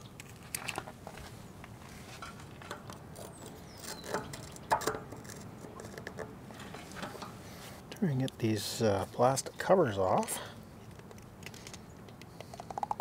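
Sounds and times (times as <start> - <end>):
metal part clicking and scraping: 2.1 - 7.4.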